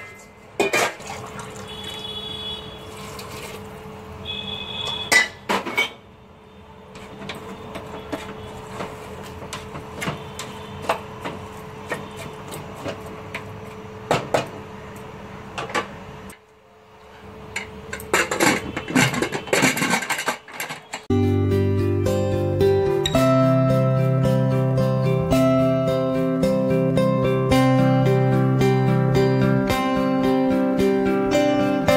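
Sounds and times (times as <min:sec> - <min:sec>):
wooden spoon stirring in a pot: 0:07.0 - 0:13.1.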